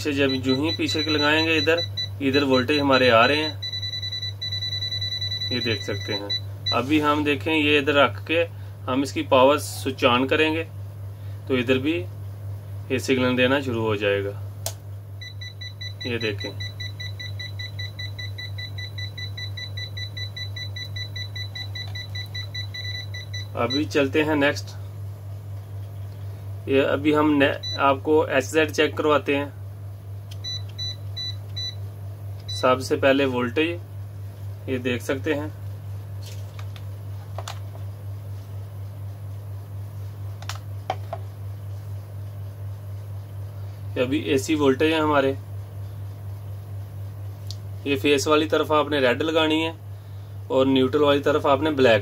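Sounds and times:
rapid electronic alarm beeps: 0.0 - 7.0, 15.2 - 24.0, 27.6 - 27.9, 30.4 - 31.8
steady low hum: 0.0 - 52.0.

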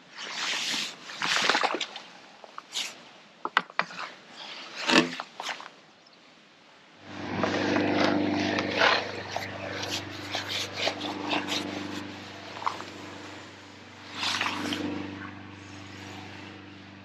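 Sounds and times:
low engine hum: 7.0 - 17.0.

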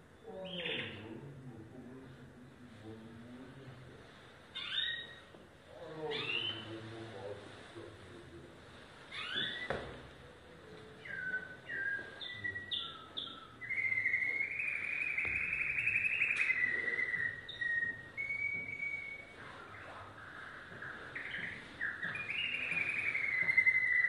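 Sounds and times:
canary singing: 0.2 - 1.2, 4.5 - 6.9, 9.0 - 24.0.

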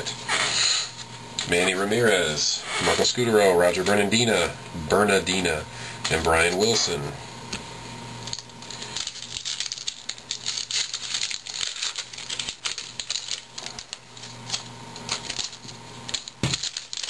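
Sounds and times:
wrapper crinkling: 8.2 - 17.0.

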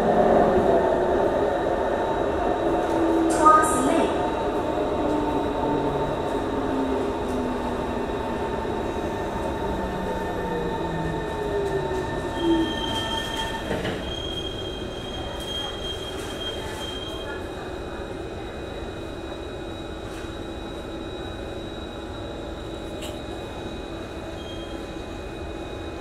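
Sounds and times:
train car running noise: 0.0 - 26.0
train squeal: 11.0 - 17.7, 18.6 - 26.0.

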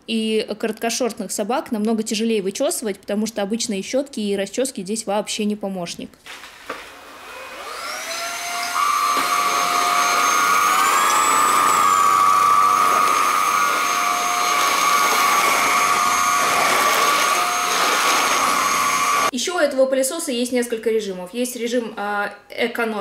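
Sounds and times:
vacuum motor whining: 7.0 - 19.3.

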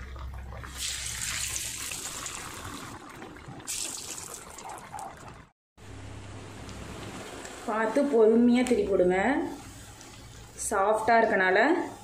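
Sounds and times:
oil bubbling and sizzling: 0.0 - 7.7, 9.3 - 11.1.

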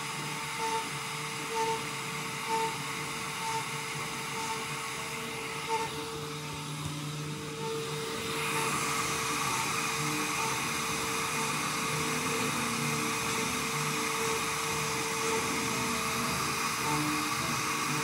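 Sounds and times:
router spindle whirring into wood: 0.0 - 18.0.

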